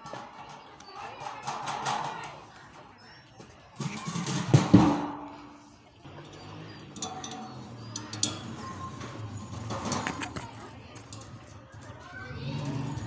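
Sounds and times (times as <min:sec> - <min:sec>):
metal clatter: 0:03.8 - 0:13.0
sharp metal clinks: 0:06.1 - 0:09.6.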